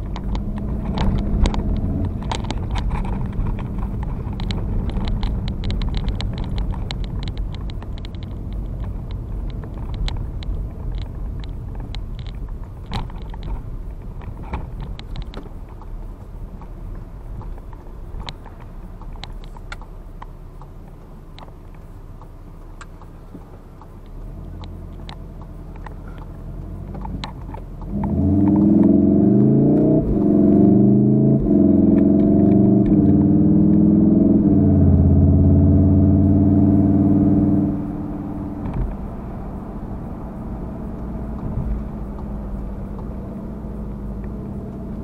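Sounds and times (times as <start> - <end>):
clicks and knocks in car cabin: 0.0 - 28.9, 38.5 - 39.4
tyre and road rumble: 0.0 - 45.0.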